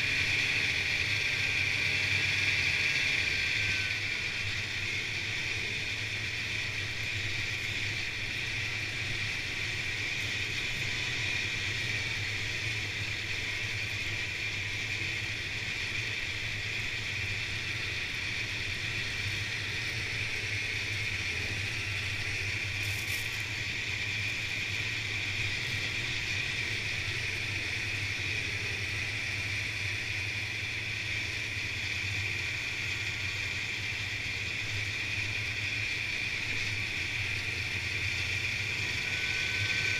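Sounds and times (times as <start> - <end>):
snowmobile engine drone: 0.0 - 39.9.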